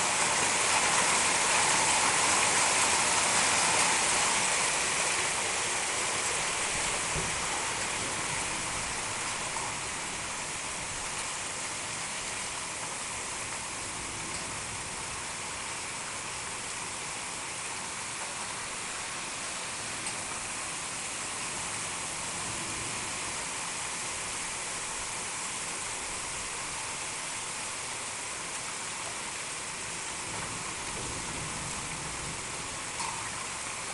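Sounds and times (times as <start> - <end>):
heavy rain on pavement: 0.0 - 33.9.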